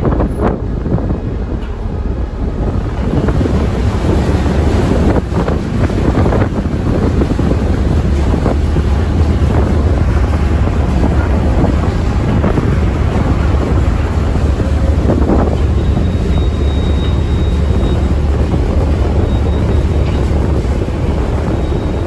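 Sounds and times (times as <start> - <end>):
ferry engines rumbling: 0.0 - 22.0
rushing water: 0.0 - 22.0
wind buffeting microphone: 0.0 - 22.0.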